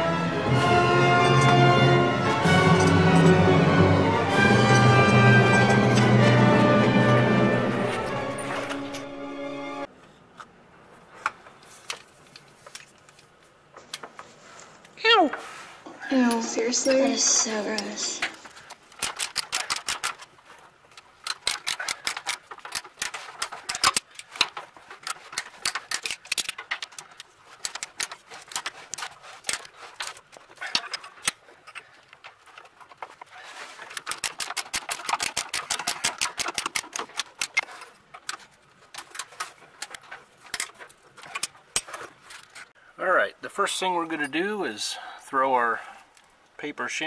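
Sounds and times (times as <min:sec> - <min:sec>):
hand ratchet clicking: 0:18.7 - 0:20.3, 0:21.0 - 0:31.4, 0:33.9 - 0:38.4.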